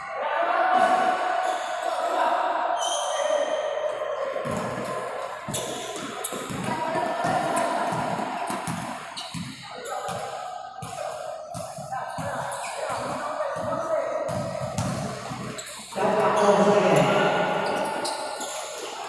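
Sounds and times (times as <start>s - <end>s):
basketball bouncing: 4.4s - 4.9s, 5.5s - 15.6s.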